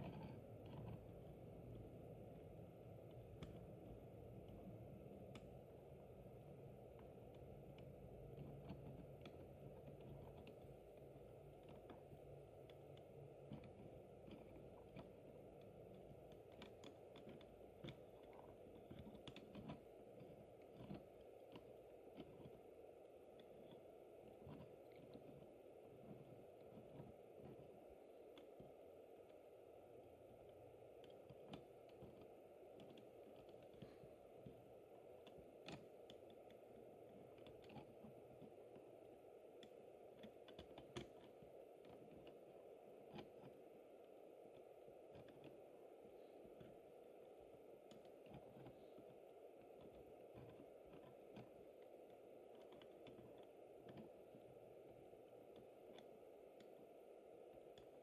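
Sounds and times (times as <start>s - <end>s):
low steady hum: 0.0s - 58.0s
small mechanical clicks and ticks: 0.0s - 58.0s.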